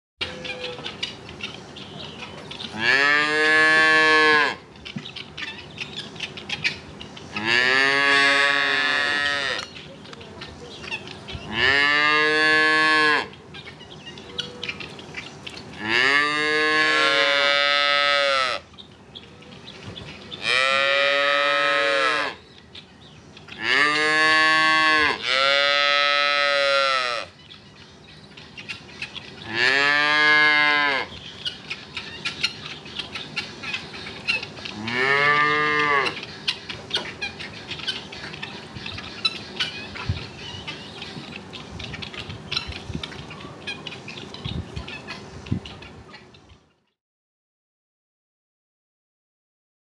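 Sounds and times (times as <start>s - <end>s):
calves mooing: 2.8s - 4.6s, 7.4s - 9.6s, 11.5s - 13.3s, 15.8s - 18.6s, 20.4s - 22.4s, 23.6s - 27.3s, 29.4s - 31.2s, 34.7s - 36.2s.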